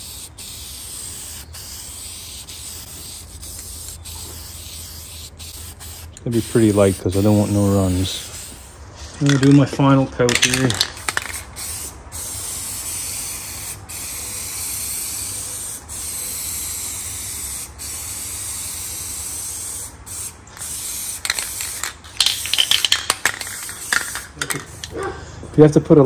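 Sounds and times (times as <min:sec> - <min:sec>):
spray paint can hissing: 0:00.0 - 0:09.6, 0:10.3 - 0:25.0
sharp clicks and rattles: 0:09.2 - 0:11.5, 0:21.2 - 0:25.0.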